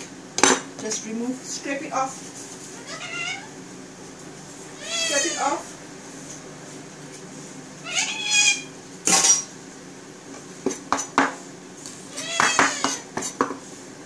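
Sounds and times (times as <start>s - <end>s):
cat meowing: 2.8s - 3.5s, 4.8s - 5.5s, 7.8s - 8.7s, 12.1s - 13.0s
knife chopping on wooden board: 10.6s - 11.4s.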